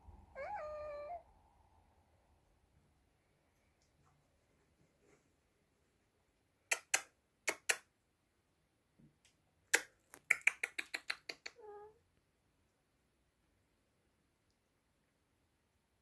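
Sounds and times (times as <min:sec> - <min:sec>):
sharp dry clicks: 0:09.7 - 0:11.6.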